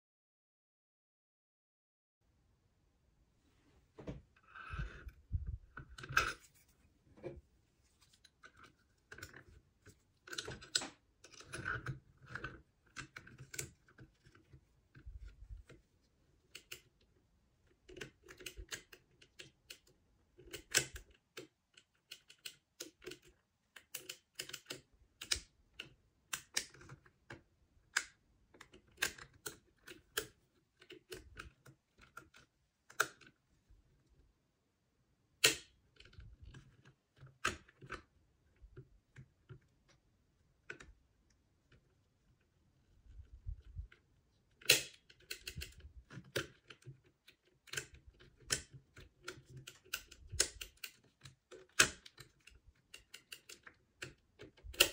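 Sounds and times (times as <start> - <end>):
lock-picking tools clicking: 44.6 - 54.9.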